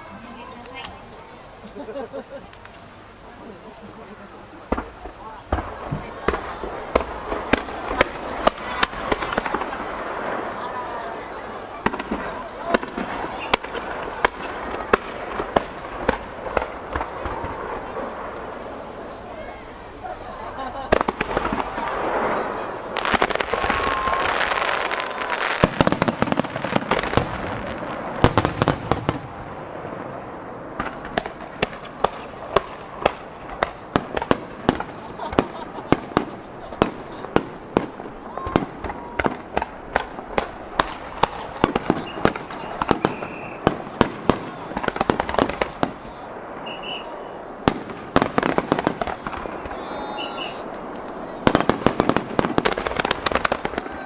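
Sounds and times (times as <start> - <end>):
firework crackling: 0.0 - 54.0
firework launches and bursts: 4.6 - 54.0.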